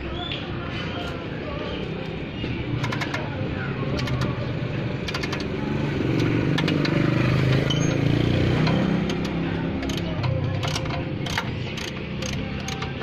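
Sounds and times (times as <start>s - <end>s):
vehicle engine running: 0.8s - 13.0s
ratchet wrench clicking: 2.8s - 3.3s, 3.9s - 4.4s, 5.0s - 13.0s.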